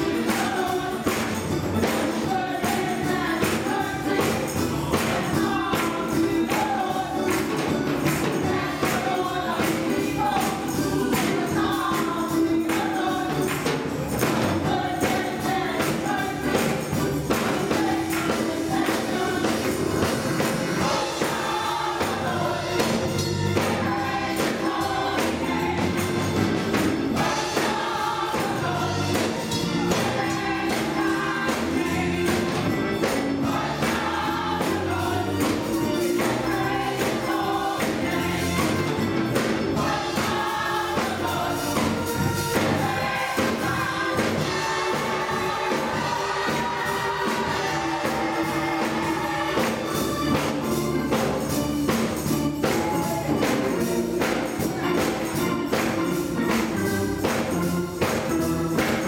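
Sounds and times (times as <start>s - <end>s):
gospel choir singing: 0.0s - 59.0s
keyboard and organ: 0.0s - 59.0s
hand clapping: 5.0s - 10.6s.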